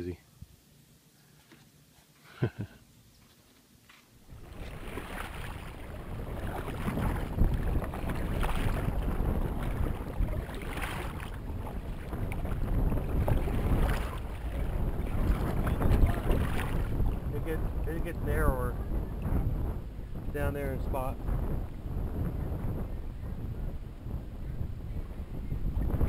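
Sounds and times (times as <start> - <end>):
paddle strokes in water: 3.2 - 17.3
wind on microphone: 4.2 - 26.0.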